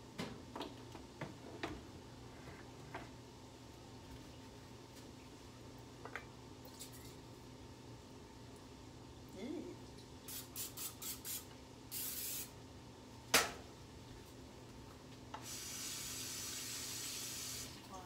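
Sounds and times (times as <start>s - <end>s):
aerosol can spraying: 10.3s - 12.5s
steady hiss: 10.3s - 12.6s, 15.3s - 18.0s.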